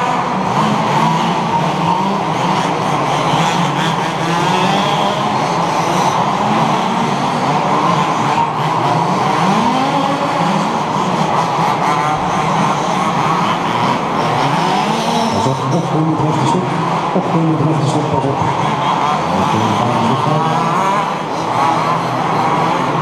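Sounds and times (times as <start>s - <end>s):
small two-stroke engines revving: 0.0s - 23.0s.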